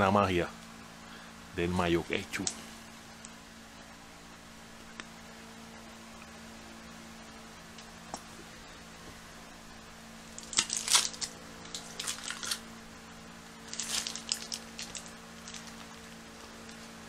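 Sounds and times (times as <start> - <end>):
faint steady hum: 0.0 - 17.0
foil and paper wrapping crinkling: 10.4 - 12.6, 13.6 - 17.0.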